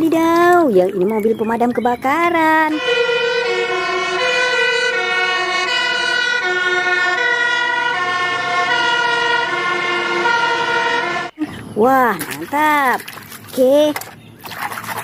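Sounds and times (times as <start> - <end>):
two-tone fire engine siren: 2.4 - 11.4.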